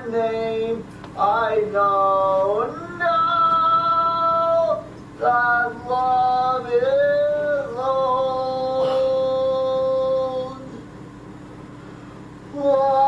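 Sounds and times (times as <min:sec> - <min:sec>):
man singing high notes: 0:01.3 - 0:10.8.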